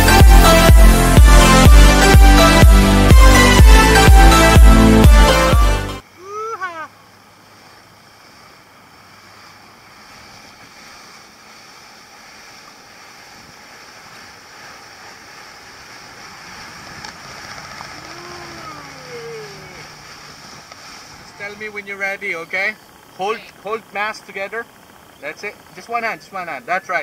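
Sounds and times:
water rushing from boat wake: 0.0 - 27.0
faint low engine hum: 6.0 - 27.0.

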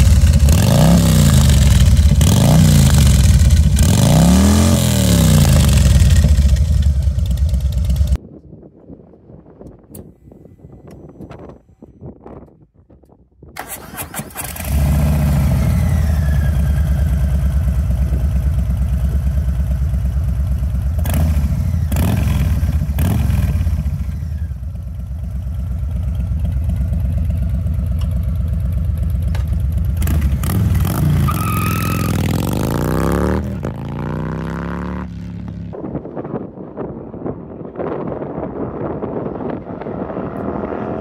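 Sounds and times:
motorcycle revving and pulling away: 0.0 - 8.2, 13.7 - 35.8, 38.5 - 41.0
motorcycle engine idling: 5.5 - 8.2, 15.9 - 21.1, 23.7 - 30.8.

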